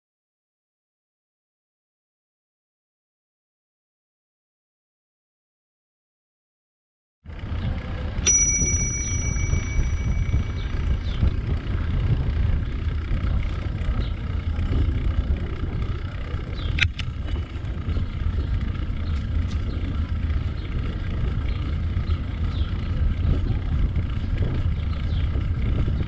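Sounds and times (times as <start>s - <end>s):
bicycle riding rumble: 7.2s - 26.0s
bicycle bell ringing: 8.2s - 12.1s
sharp click: 16.7s - 17.1s.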